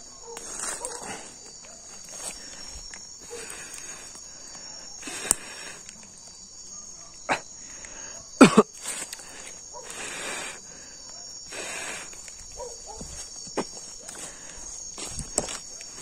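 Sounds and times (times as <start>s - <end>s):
crickets and night insects: 0.0s - 16.0s
sticks snapping: 5.0s - 6.2s.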